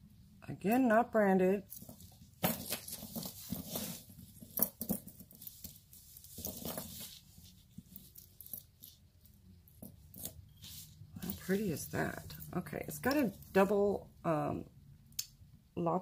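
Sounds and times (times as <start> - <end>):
chain links clinking: 1.7 - 9.0, 9.7 - 12.5.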